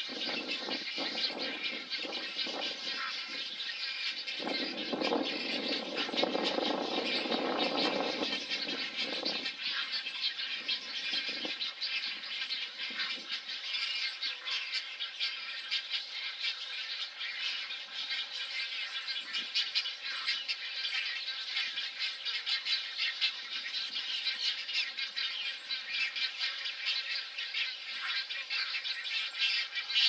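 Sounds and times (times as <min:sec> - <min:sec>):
egrets croaking: 0:00.0 - 0:11.6
birds rattling and clicking: 0:00.0 - 0:13.3.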